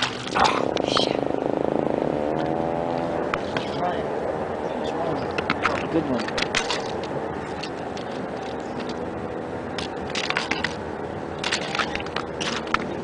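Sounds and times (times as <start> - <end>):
sharp clicks and crackles: 5.3 - 9.0.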